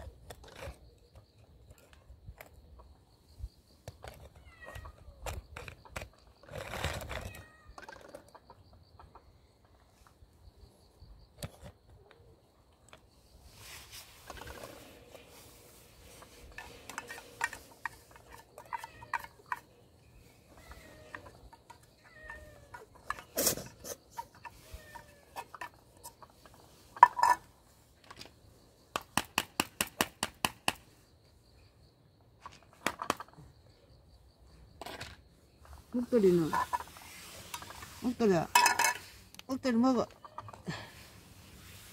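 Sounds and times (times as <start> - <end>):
spoon scraping metal can: 36.3 - 39.3.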